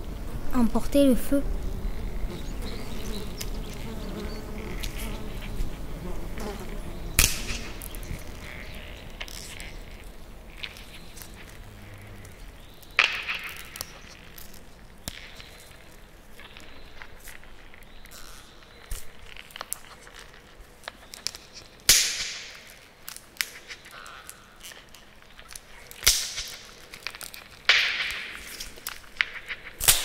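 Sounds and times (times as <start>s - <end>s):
wasp buzzing in flight: 1.4s - 8.7s.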